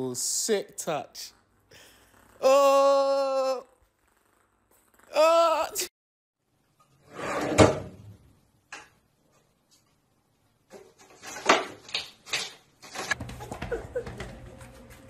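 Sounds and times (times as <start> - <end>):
drawer sliding open: 7.0 - 8.1.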